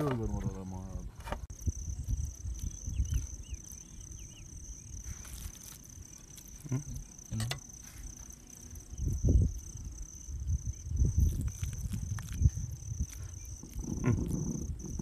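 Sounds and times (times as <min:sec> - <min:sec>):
cricket trilling: 0:00.0 - 0:15.0
low rumbling noise: 0:08.8 - 0:15.0.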